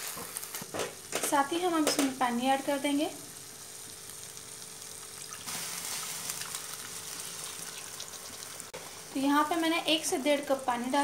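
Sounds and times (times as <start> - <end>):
water pouring into hot pan: 4.8 - 8.8.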